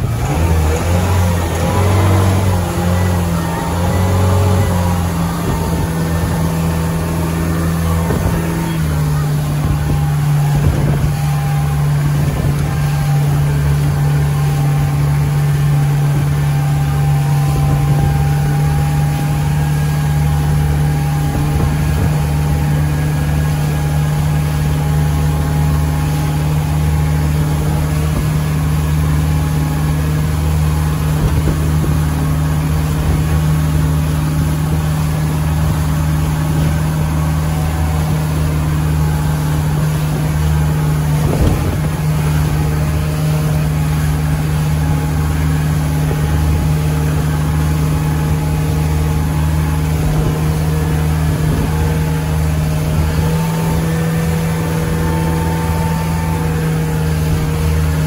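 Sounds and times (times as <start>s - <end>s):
motorboat engine drone: 0.0s - 58.0s.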